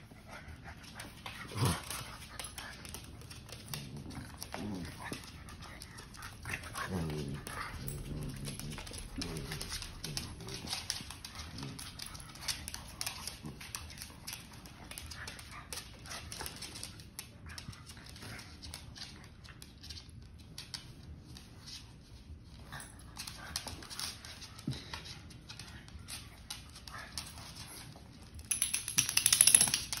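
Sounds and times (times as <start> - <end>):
dogs scuffling: 0.0 - 30.0
claws clicking on wooden floor: 23.1 - 30.0.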